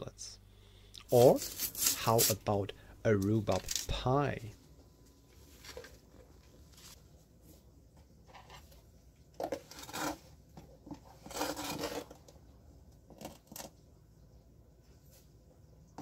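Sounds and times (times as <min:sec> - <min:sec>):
spoon scraping sugar: 0:01.0 - 0:02.5, 0:09.5 - 0:10.3, 0:10.9 - 0:12.2.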